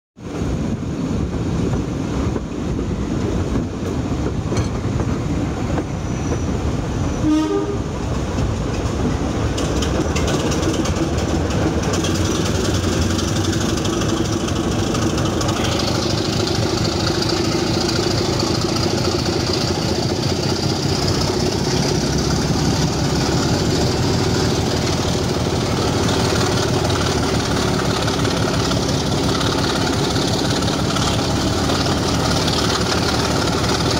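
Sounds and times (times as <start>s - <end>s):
diesel locomotive engine working hard: 0.2s - 33.9s
wheels clattering on rails: 0.2s - 33.9s
short train horn: 7.1s - 8.0s.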